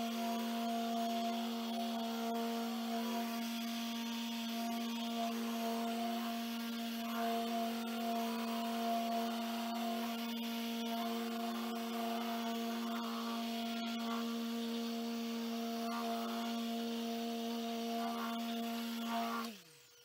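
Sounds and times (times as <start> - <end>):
polisher motor humming: 0.0 - 20.0
foam pad rubbing hiss: 12.0 - 14.8, 15.7 - 19.5.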